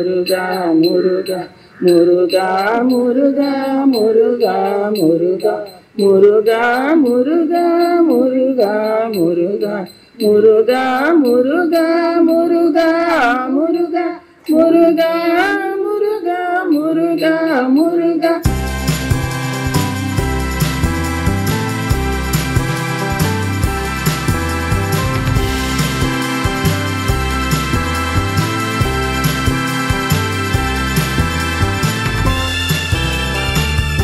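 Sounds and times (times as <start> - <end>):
women singing devotional song: 0.0 - 18.5.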